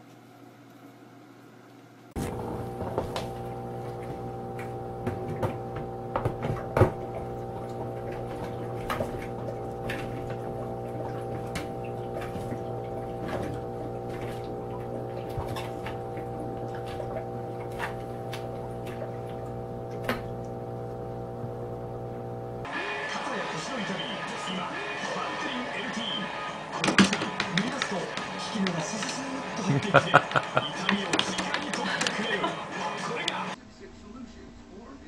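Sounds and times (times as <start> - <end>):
humidifier motor hum: 2.2 - 22.7
small plops and clicks: 2.2 - 22.7
water gurgling and dripping: 2.2 - 22.7.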